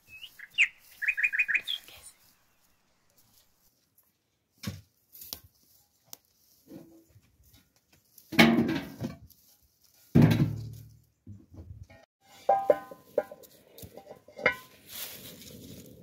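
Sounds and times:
knocks and thuds: 10.1 - 11.8.

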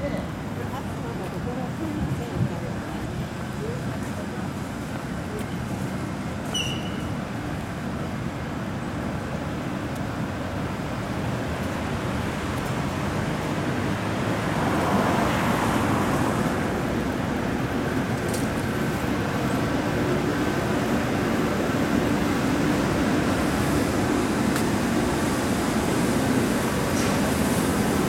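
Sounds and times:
city street traffic: 0.0 - 28.0.

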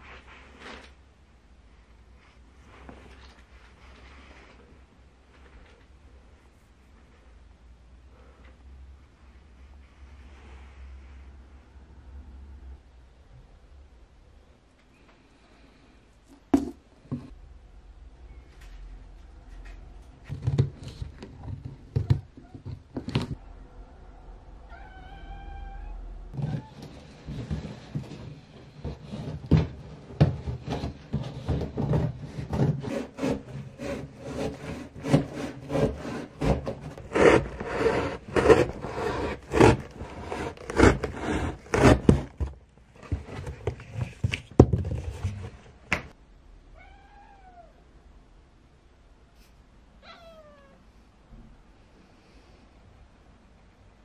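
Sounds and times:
cat meowing: 24.6 - 26.7, 46.8 - 47.8, 50.0 - 50.9.

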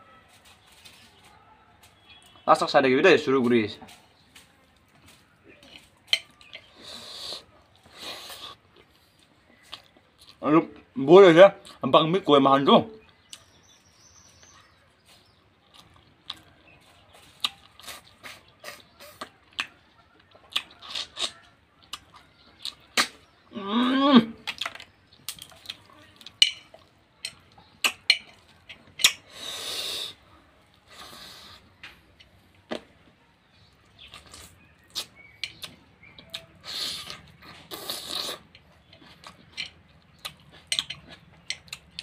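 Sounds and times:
slurping: 34.0 - 41.8.

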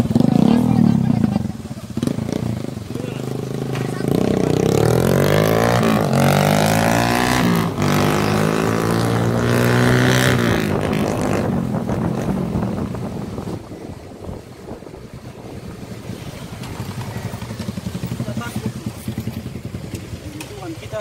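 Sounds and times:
motorcycle engine accelerating: 0.0 - 21.0.

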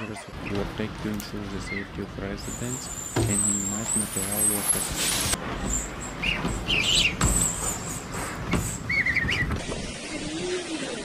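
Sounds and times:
high wavering wind squeals: 1.6 - 9.6.

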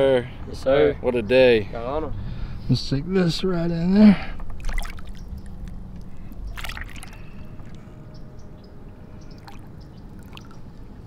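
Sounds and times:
water splashing and sloshing: 4.4 - 8.0, 9.0 - 11.0
sharp splashes: 4.6 - 5.6, 6.3 - 7.9, 9.3 - 10.7.

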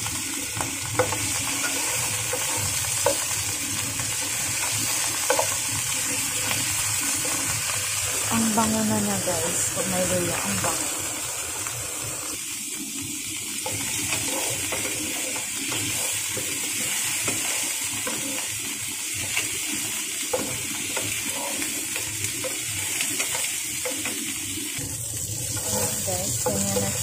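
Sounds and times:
chicken sizzling in oil: 0.0 - 27.0
spatula tapping pan: 0.5 - 6.6, 13.6 - 18.5, 20.2 - 24.3, 25.5 - 27.0
wooden spatula scraping pan: 13.6 - 18.5, 25.5 - 27.0.

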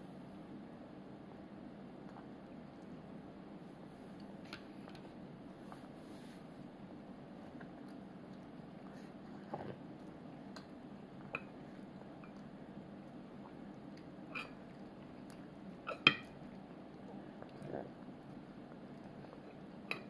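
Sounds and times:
low room hum: 0.0 - 20.0
toddler chewing food: 7.0 - 20.0.

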